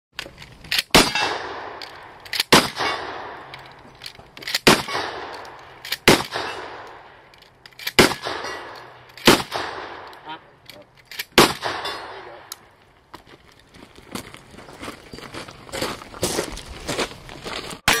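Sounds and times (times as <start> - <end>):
metallic clangs of steel targets: 0.8 - 3.7, 4.5 - 7.1, 7.8 - 12.6
gunshots with echoing tail: 1.0 - 3.5, 4.6 - 7.2, 8.0 - 10.2, 11.4 - 12.5.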